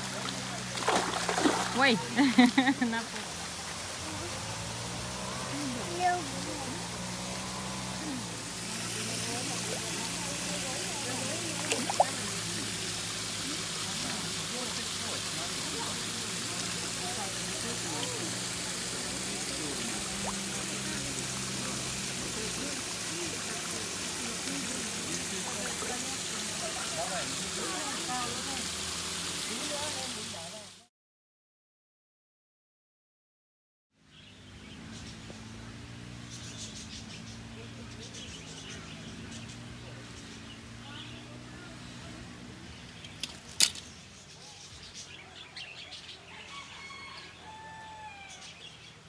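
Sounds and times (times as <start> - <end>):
water splashing in pond: 0.0 - 30.8
faint indistinct voices: 0.0 - 30.9, 34.6 - 49.0
small waterfall running: 0.0 - 30.9, 34.0 - 49.0
birds chirping: 34.0 - 49.0.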